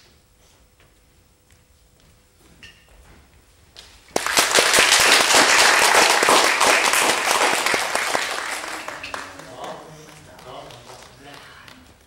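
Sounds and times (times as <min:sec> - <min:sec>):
audience applause: 0:04.1 - 0:12.0.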